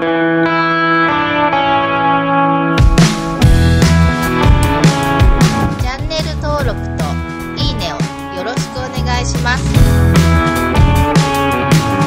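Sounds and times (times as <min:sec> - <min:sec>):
guitar chord ringing: 0:00.0 - 0:05.8
drum kit beat: 0:02.8 - 0:12.0.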